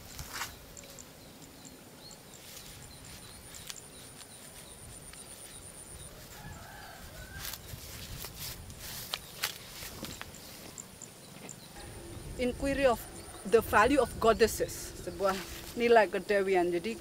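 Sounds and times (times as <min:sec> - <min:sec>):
small birds chirping: 0:00.0 - 0:17.0
thin high trill: 0:11.8 - 0:17.0.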